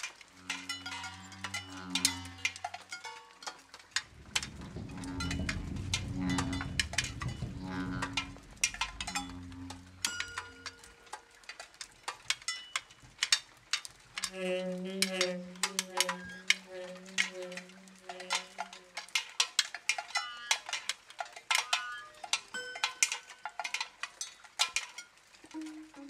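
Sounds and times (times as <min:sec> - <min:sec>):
low wavering tone: 0:00.4 - 0:02.7, 0:04.1 - 0:11.0
metal bells clanking: 0:00.4 - 0:11.2, 0:21.4 - 0:25.1.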